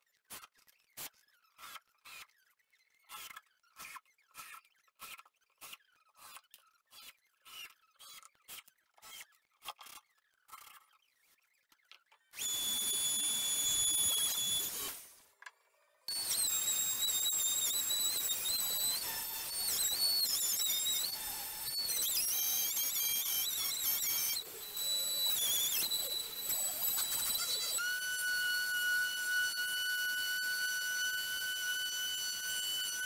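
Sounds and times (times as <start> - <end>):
router motor whine: 12.3 - 15.0, 16.1 - 33.0.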